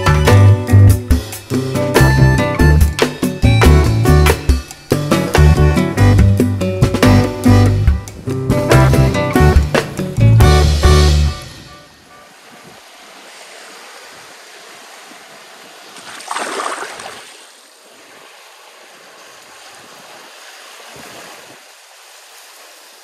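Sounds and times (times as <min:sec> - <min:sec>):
wave breaking: 0:06.8 - 0:23.0
gentle waves washing on sand: 0:11.9 - 0:23.0.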